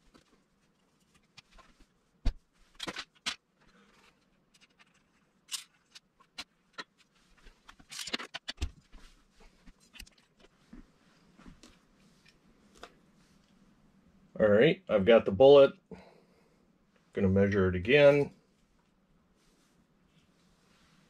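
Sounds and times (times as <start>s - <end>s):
rifle and rod clicks and scrapes: 4.2s - 8.6s.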